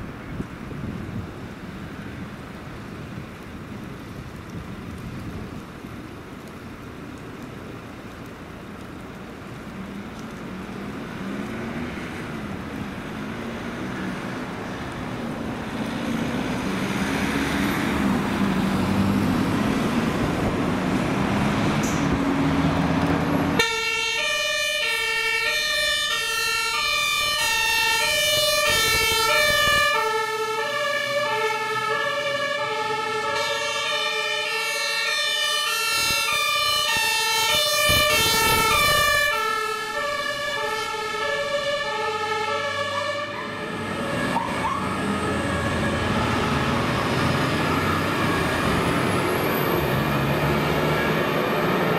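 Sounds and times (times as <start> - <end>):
two-tone siren: 23.6 - 51.2.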